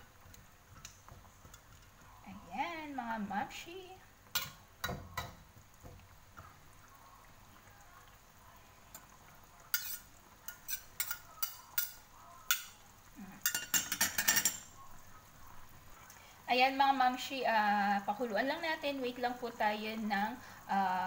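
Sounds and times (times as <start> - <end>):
faint sizzle of sauce: 0.0 - 21.0
metal utensils clinking on a wok: 4.4 - 5.3, 9.7 - 12.8, 13.4 - 14.8.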